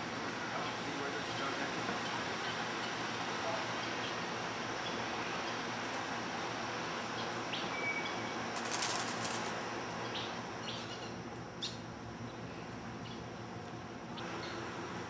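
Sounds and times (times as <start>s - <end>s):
bird wings flapping: 8.5s - 9.6s.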